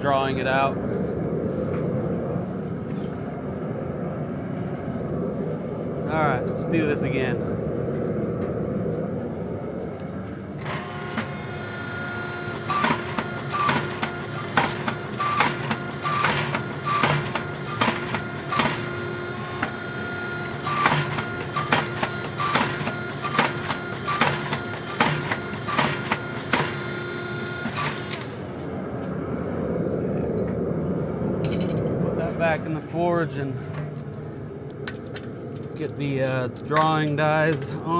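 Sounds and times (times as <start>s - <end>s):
press motor hum: 10.6s - 30.0s.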